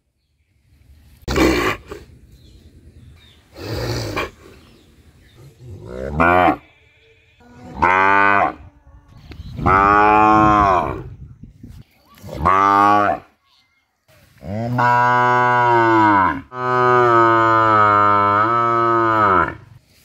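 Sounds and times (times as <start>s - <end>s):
cow mooing: 14.7s - 19.6s.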